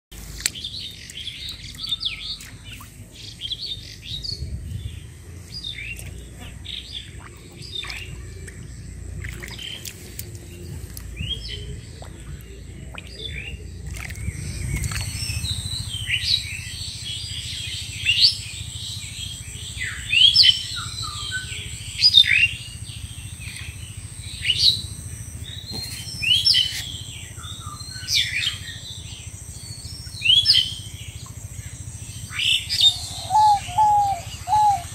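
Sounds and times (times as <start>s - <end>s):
small birds chirping: 0.1s - 34.9s
loud bird call: 32.2s - 34.9s.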